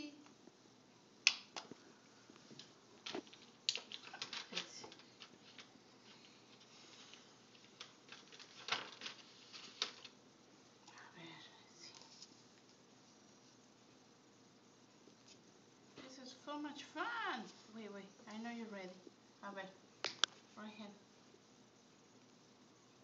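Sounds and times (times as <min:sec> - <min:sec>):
paper sheets rustling: 0:02.5 - 0:10.2.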